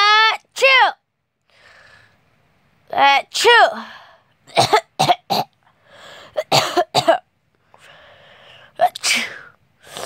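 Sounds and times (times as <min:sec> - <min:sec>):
person coughing: 0:04.5 - 0:05.6, 0:06.4 - 0:07.2.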